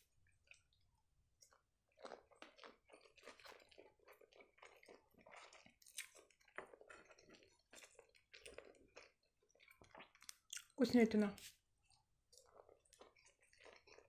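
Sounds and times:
chewing sushi with wet clicks: 0.2 - 0.8, 1.4 - 10.8, 11.8 - 14.0.

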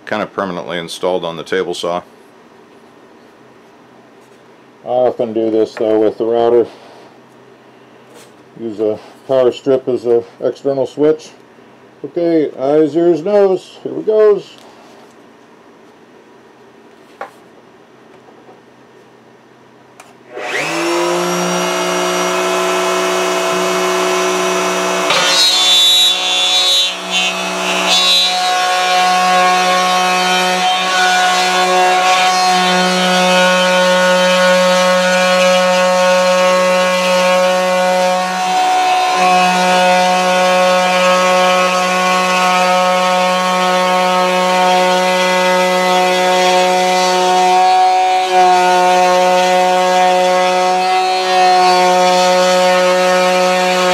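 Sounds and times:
electric router whining: 20.3 - 53.9
router bit cutting board: 20.3 - 53.9.

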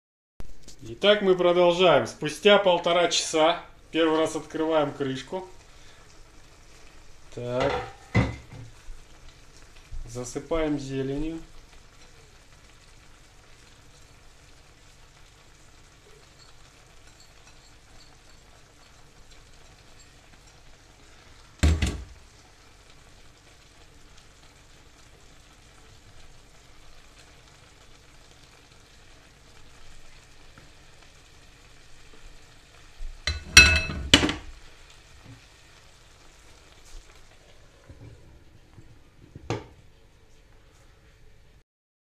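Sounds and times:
food sizzling in a frying pan: 0.4 - 41.6
wooden spatula stirring knocks: 21.6 - 22.2, 33.2 - 34.5.

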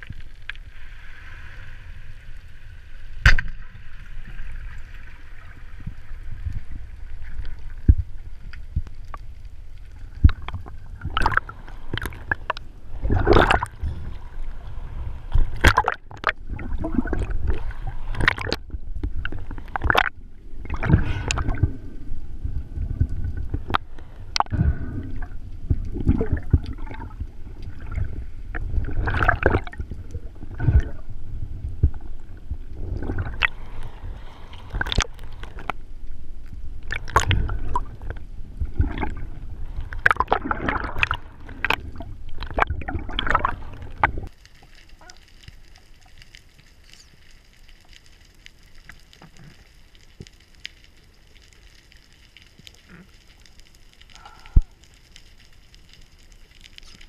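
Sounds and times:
water gurgling underwater: 10.0 - 35.7, 36.8 - 46.2.

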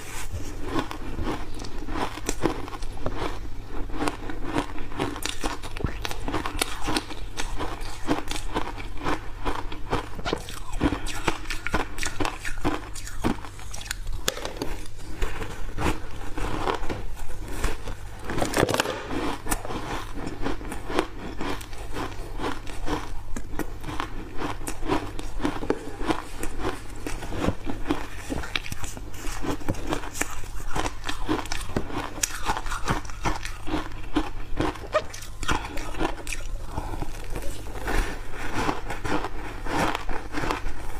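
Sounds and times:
steady low hum: 0.0 - 40.9
ice crunching while chewed: 0.1 - 40.9.

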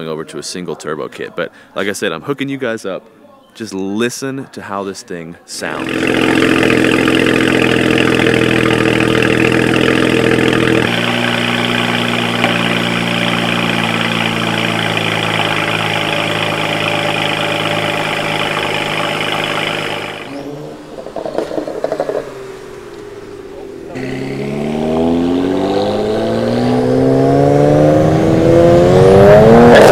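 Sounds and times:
car engine idling: 5.6 - 26.1.

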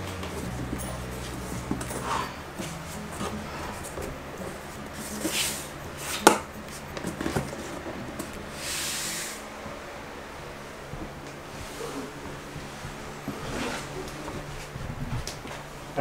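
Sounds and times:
tile scraping on floor: 1.2 - 9.4, 13.2 - 15.2.

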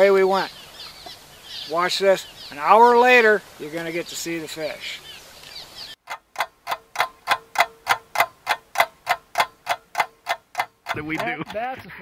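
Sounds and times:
clock ticking: 6.0 - 12.0.

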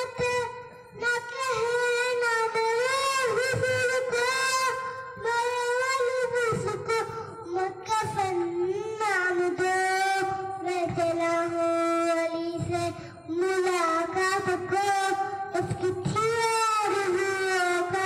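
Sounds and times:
boy singing into a microphone: 0.0 - 18.0
breaths between phrases: 12.9 - 13.3.

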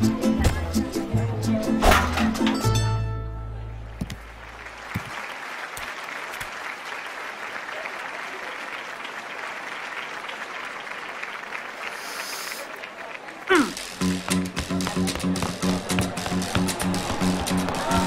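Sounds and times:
crowd applauding: 4.2 - 18.0.

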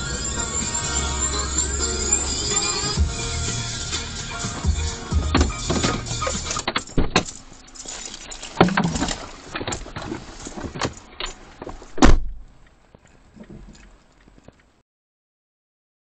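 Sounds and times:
heavy thump: 4.6 - 6.1, 11.9 - 12.5.

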